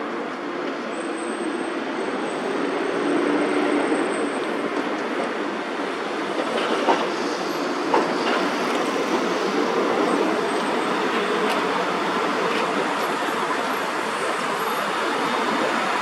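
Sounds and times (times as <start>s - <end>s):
tram rumbling on tracks: 0.0s - 16.0s
wheels clacking over rail joints: 7.8s - 16.0s.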